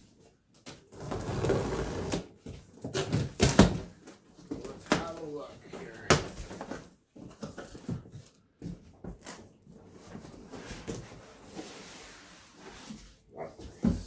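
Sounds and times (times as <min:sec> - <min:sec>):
cardboard scraping and rubbing: 0:00.9 - 0:02.4, 0:09.1 - 0:13.3.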